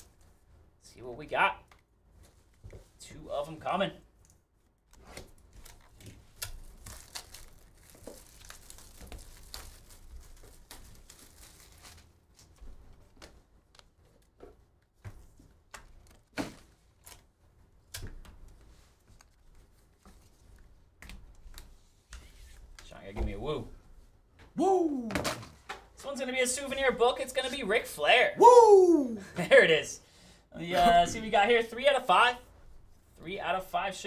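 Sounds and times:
packaging wrap tearing and crinkling: 5.6 - 12.2.

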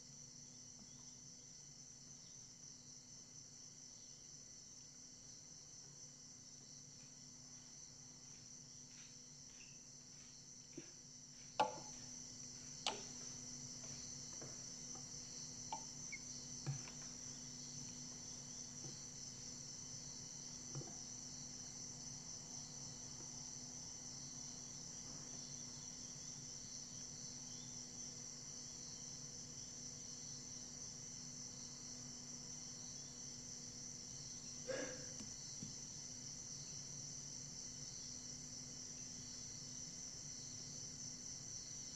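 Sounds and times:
crickets chirring: 0.0 - 41.9
soft knocks: 16.6 - 17.1.

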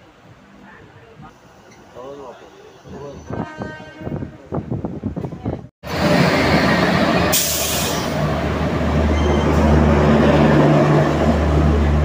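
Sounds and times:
train passing close by: 1.3 - 12.0
wind noise: 2.8 - 12.0.

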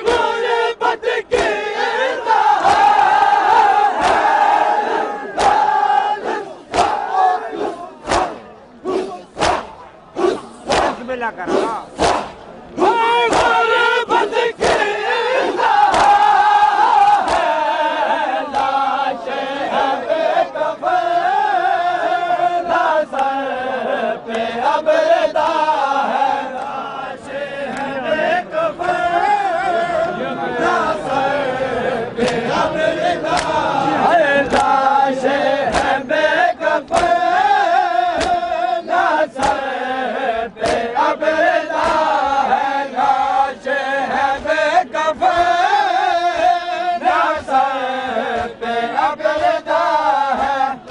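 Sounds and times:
men chanting in unison: 0.0 - 50.9
hands slapping bare chests: 4.0 - 4.4, 5.4 - 5.7, 6.7 - 7.0, 8.0 - 11.0, 11.6 - 12.4, 13.3 - 13.6, 15.8 - 16.2, 17.1 - 17.6, 33.3 - 33.6, 34.4 - 34.8, 35.6 - 36.0, 36.8 - 37.3, 38.1 - 38.5, 39.4 - 39.7, 40.6 - 40.9, 41.7 - 42.1.

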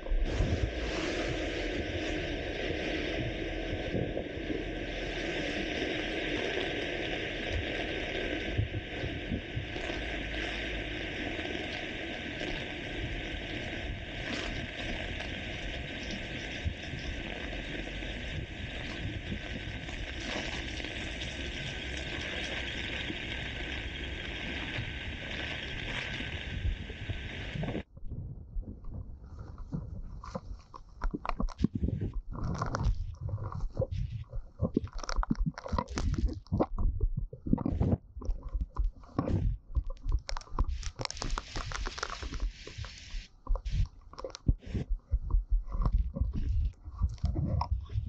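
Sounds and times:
heavy rain on pavement: 0.3 - 27.8, 40.7 - 43.8
wind buffeting microphone: 21.0 - 30.6.

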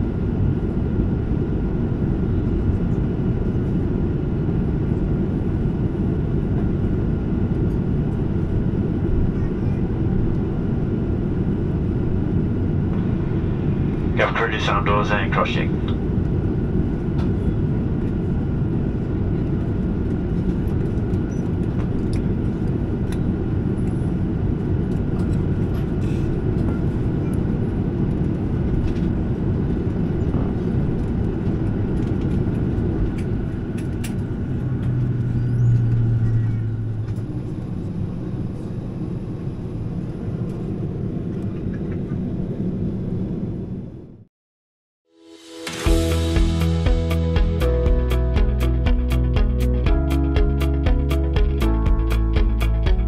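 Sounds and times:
low hum: 0.0 - 42.0
airplane cabin engine rumble: 0.0 - 44.3.

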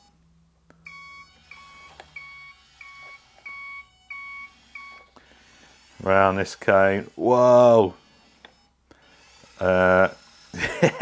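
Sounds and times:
reversing beeps: 0.8 - 5.2.

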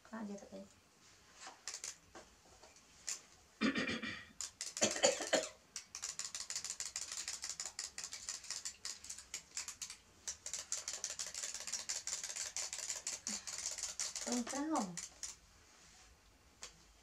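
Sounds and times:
wind-up toys ticking: 1.6 - 2.0, 4.4 - 5.0, 5.8 - 15.4.

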